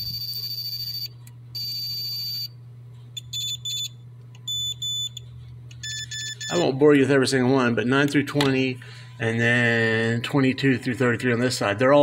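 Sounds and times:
logic probe beeping: 0.0s - 2.6s, 3.2s - 6.8s
steady low hum: 0.0s - 12.0s.

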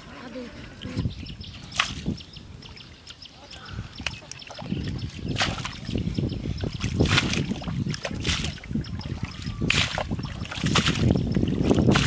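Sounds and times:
water splashing onto mud: 1.6s - 2.2s, 3.0s - 12.0s.

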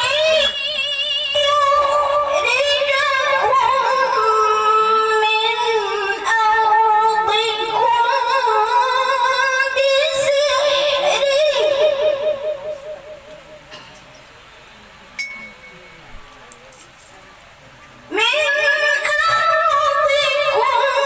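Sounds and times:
woman reciting melodically: 0.0s - 13.3s, 18.1s - 21.0s.

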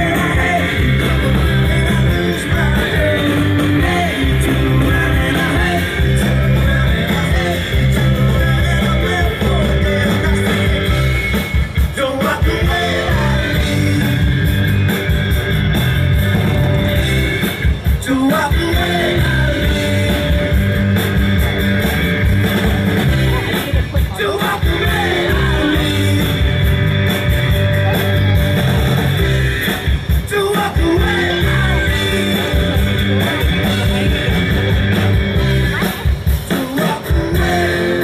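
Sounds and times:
person singing: 0.0s - 14.4s, 18.0s - 20.6s, 23.1s - 26.7s, 30.2s - 34.8s, 35.7s - 38.0s
guitar: 0.0s - 38.0s
rock band playing live: 0.0s - 38.0s.

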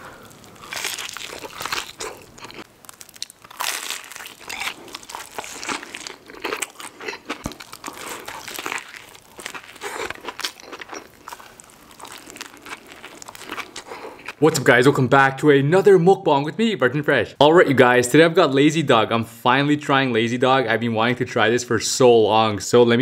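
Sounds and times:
crunching bites: 0.0s - 14.4s
chewing: 0.2s - 14.4s.

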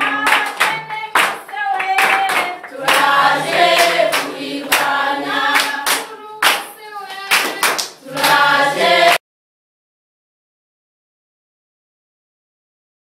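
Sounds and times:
group singing together: 0.0s - 9.2s
hand claps: 0.0s - 9.2s.

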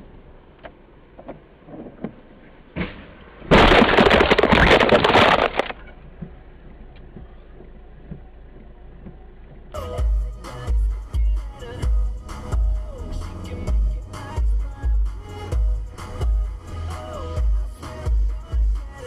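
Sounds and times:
low road noise: 0.0s - 19.0s
crunching and clattering: 1.2s - 6.4s
car crash: 1.7s - 6.0s.

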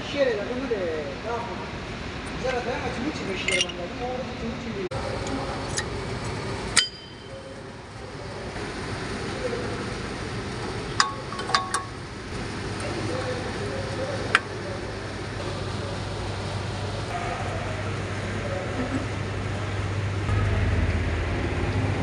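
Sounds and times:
metallic clinks of brake pads: 6.8s - 7.3s, 11.0s - 12.0s.

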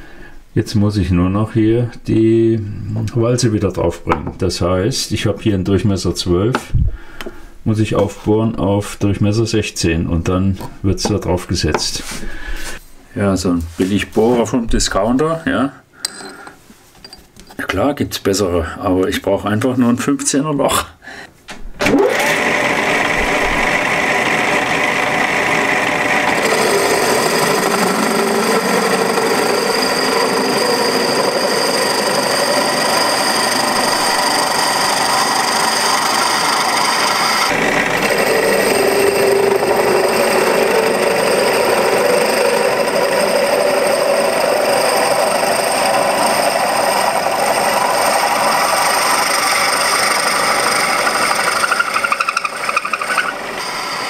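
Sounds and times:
drill cutting metal: 21.8s - 54.0s
metal lathe running: 21.8s - 54.0s.

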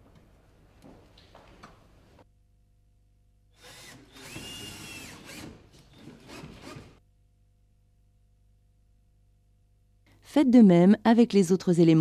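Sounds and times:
cordless drill driving screws: 3.6s - 7.0s.

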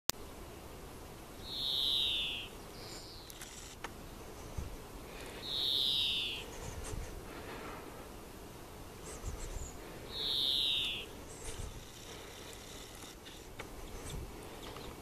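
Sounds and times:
owl hissing calls: 1.4s - 3.7s, 5.1s - 7.8s, 9.0s - 14.1s.

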